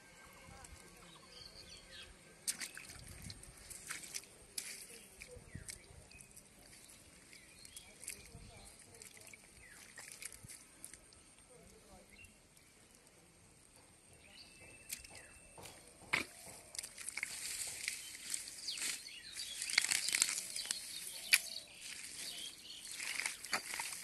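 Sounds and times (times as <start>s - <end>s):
weeds tearing from mud: 16.1s - 24.0s.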